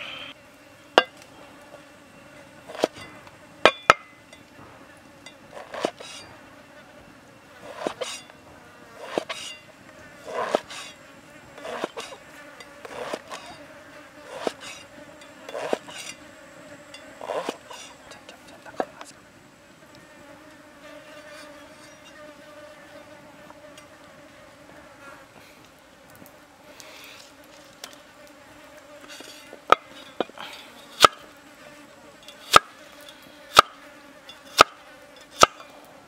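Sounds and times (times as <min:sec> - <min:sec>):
insects buzzing: 0:00.0 - 0:36.0
cleaver chopping on wooden block: 0:32.5 - 0:32.7, 0:33.5 - 0:33.8, 0:34.6 - 0:34.8, 0:35.4 - 0:35.6.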